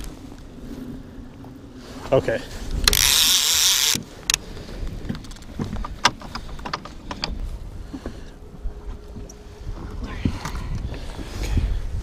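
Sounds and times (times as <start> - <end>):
fishing reel clicks and knocks: 2.7 - 4.4, 5.0 - 7.4.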